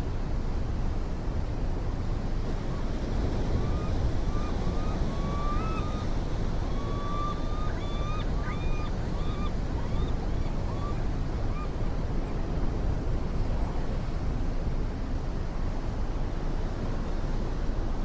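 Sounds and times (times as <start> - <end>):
ocean surf on rocky shore: 0.1 - 18.0
bird calling high notes: 3.6 - 11.0.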